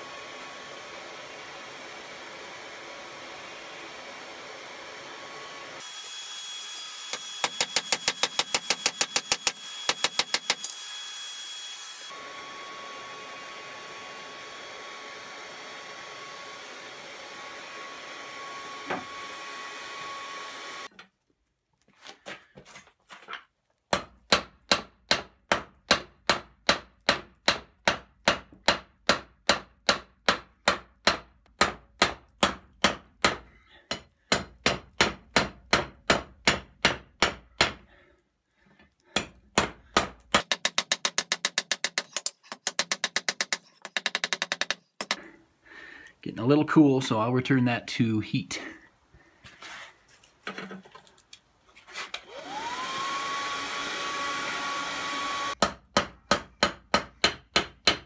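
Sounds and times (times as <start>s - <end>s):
forge blower rushing: 0.0s - 20.9s, 52.2s - 55.6s.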